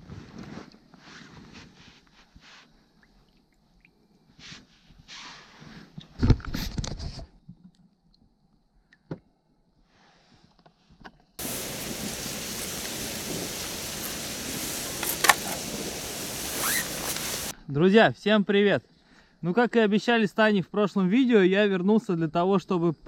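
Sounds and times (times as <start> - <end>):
steady hiss: 11.4 - 17.5
water sloshing and splashing: 11.4 - 17.5.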